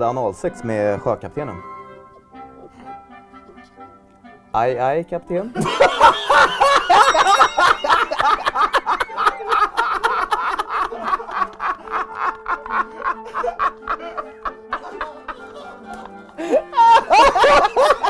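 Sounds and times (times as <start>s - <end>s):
men laughing hard: 5.6s - 18.0s.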